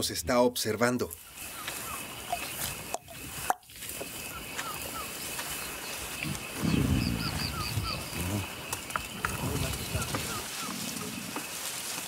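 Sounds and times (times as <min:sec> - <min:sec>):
birds chirping: 0:00.0 - 0:12.0
high insect drone: 0:01.1 - 0:12.0
low rumbling vocal sound: 0:06.2 - 0:08.5.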